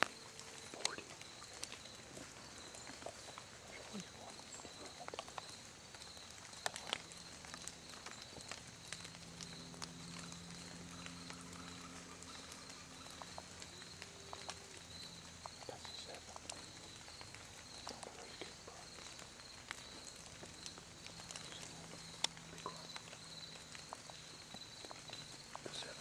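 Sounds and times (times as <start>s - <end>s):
sharp twig snap: 0.0s - 1.8s
footsteps crunching dry leaves: 15.8s - 26.0s.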